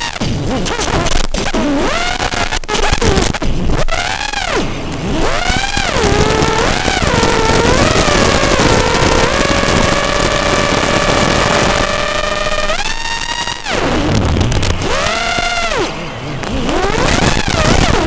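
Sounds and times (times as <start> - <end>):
quadcopter motors whining: 4.0 - 18.0.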